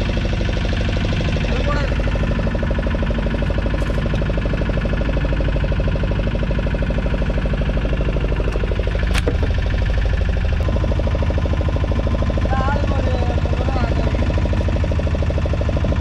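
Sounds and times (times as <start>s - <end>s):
boat engine running: 0.0s - 16.0s.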